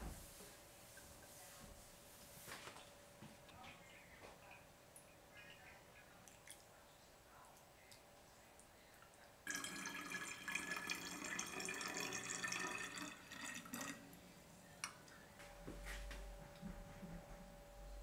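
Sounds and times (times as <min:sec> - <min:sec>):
syrup pouring into glass bottle: 0:09.5 - 0:14.0.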